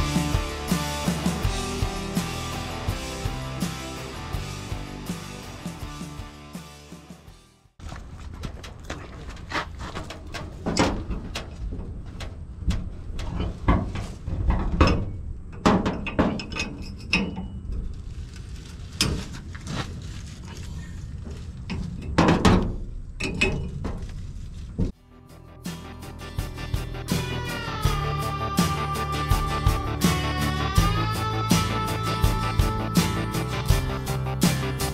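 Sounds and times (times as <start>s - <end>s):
music: 0.0s - 7.8s, 25.0s - 34.9s.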